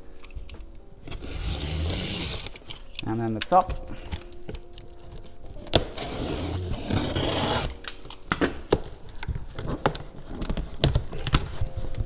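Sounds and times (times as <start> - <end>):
knife blade scraping tape: 1.1 - 2.9, 5.8 - 8.0
cardboard flaps rustling: 8.5 - 12.0.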